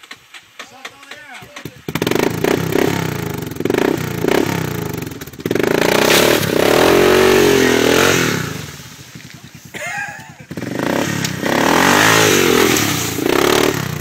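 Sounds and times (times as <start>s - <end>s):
atv engine revving: 0.0s - 14.0s.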